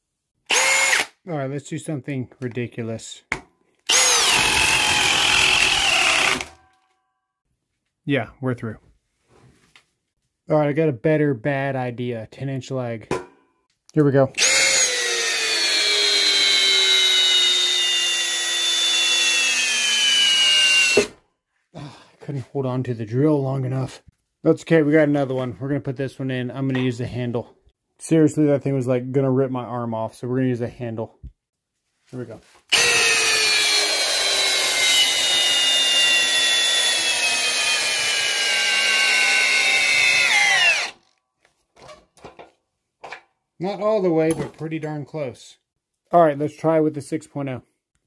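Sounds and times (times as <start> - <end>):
cordless drill motor whine: 0.5 - 1.1, 3.9 - 6.5, 14.4 - 21.1, 32.7 - 41.0.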